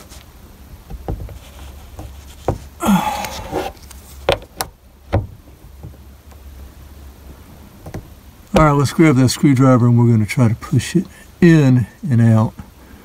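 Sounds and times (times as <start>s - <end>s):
scraping rasp: 1.3s - 3.9s.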